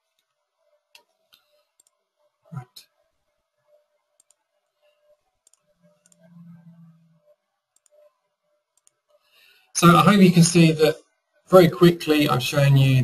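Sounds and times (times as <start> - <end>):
computer mouse clicks: 0.1 - 2.0, 4.2 - 4.4, 5.4 - 6.8, 7.7 - 8.1, 8.7 - 9.3
low hum: 5.5 - 8.1.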